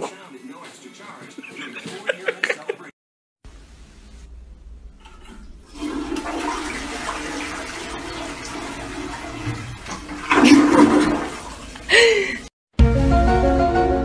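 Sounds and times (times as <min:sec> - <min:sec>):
toilet flushing: 0:05.0 - 0:12.5.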